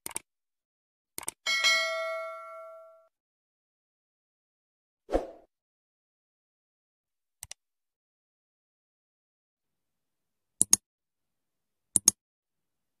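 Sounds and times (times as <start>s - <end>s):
mouse double clicks: 12.0s - 12.2s.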